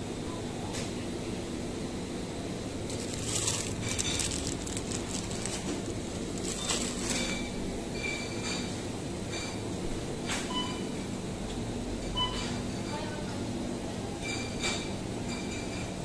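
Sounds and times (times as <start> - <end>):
refrigerator hum: 0.0 - 16.0
plastic packaging crinkling: 2.8 - 7.6.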